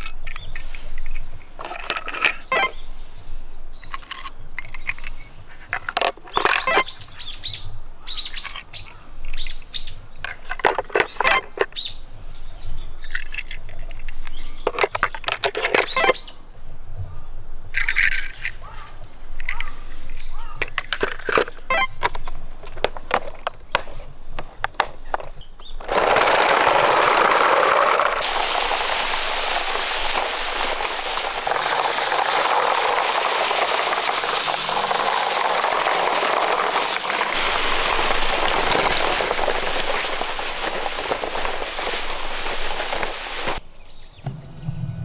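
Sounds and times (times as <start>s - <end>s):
toy cars clicking against plastic: 0.0s - 2.8s, 3.8s - 7.0s, 8.2s - 11.9s, 13.0s - 16.2s, 17.7s - 19.8s, 20.4s - 23.9s, 24.6s - 43.6s
toy truck rolling over dry leaves: 0.0s - 2.9s, 3.8s - 7.4s, 8.1s - 11.8s, 13.0s - 16.3s, 17.7s - 19.8s, 25.6s - 43.6s.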